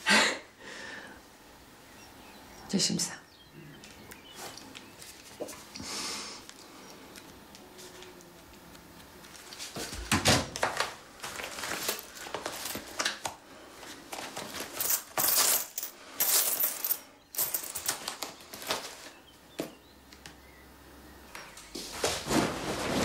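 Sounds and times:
coins jingling in a wallet: 14.6s - 18.7s.

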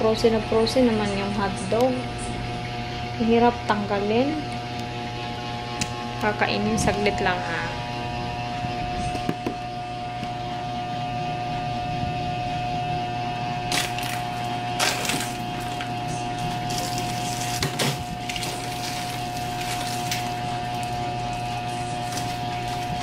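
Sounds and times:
refrigerator hum: 0.0s - 23.0s
items knocking and rattling: 13.7s - 23.0s.

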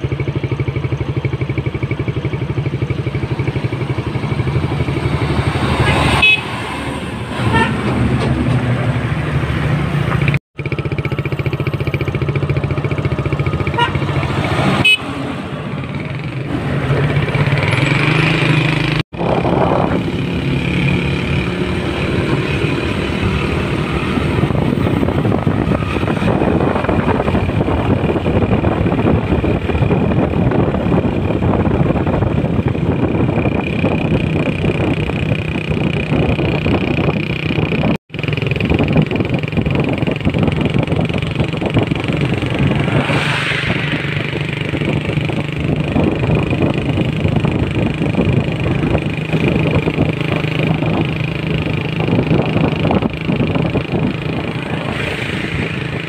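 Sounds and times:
heavy trucks driving past: 3.6s - 28.0s, 41.0s - 47.6s, 48.4s - 56.0s.

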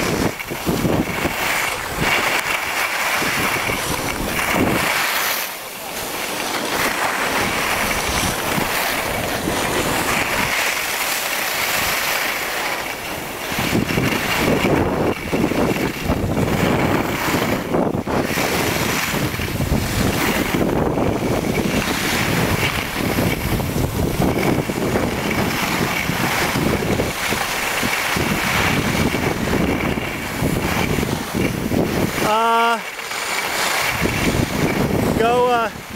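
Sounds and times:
skis hissing on snow: 0.0s - 20.6s, 21.2s - 35.7s
wind buffeting microphone: 0.0s - 35.9s.

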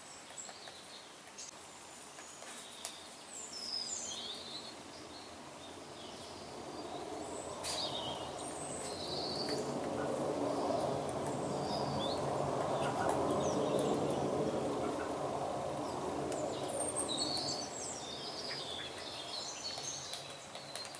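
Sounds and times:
small birds chirping: 0.0s - 20.9s
steady background noise: 0.0s - 20.9s
woodpecker pecking bark: 9.4s - 20.9s.

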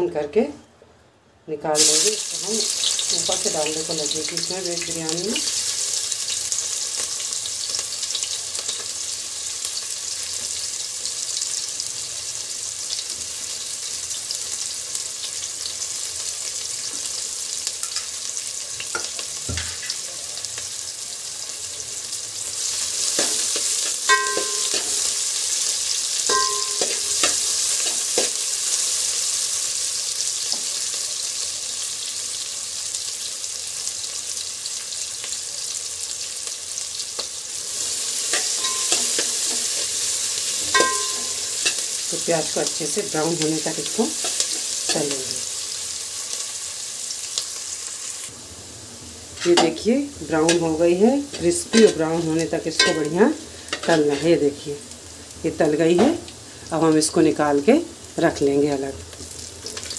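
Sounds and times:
onions sizzling in hot oil: 1.8s - 59.9s
metal spoon knocking on pot: 24.1s - 25.1s, 26.3s - 27.4s, 38.6s - 39.3s, 40.7s - 41.8s, 52.8s - 53.2s.

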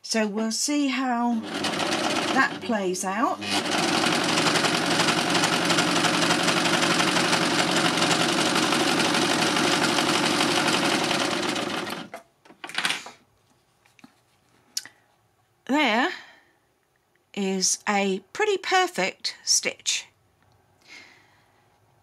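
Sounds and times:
overlocker sewing machine running: 1.3s - 12.2s.

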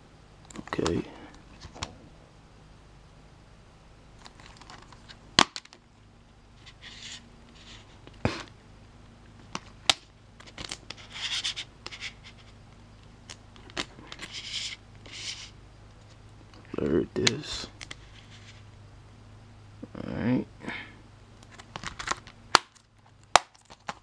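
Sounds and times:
plastic rustling and scraping: 4.2s - 5.8s, 6.6s - 8.5s, 13.3s - 16.2s, 17.8s - 18.7s, 21.4s - 24.0s
plastic case snapping: 21.7s - 24.0s.

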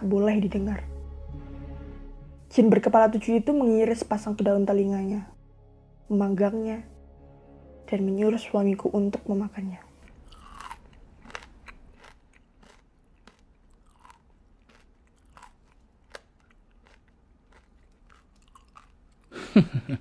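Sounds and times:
person chewing crunchy food: 10.0s - 19.4s.

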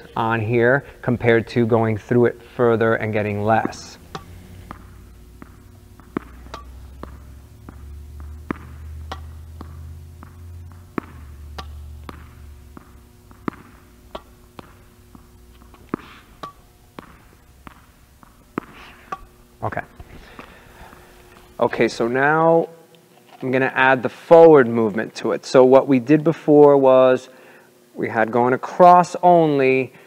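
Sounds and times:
low steady hum: 0.0s - 30.0s
racket hitting tennis ball: 2.4s - 21.9s
ball bouncing on hard court: 3.1s - 21.9s.

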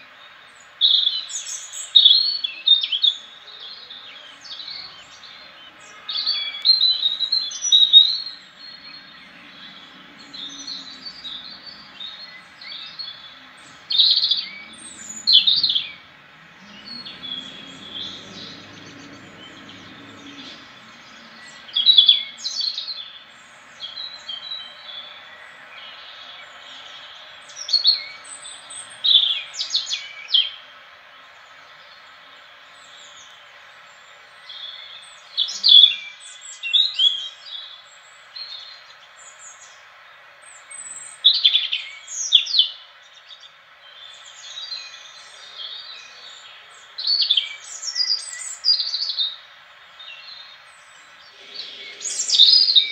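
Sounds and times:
robin singing: 0.0s - 52.9s.

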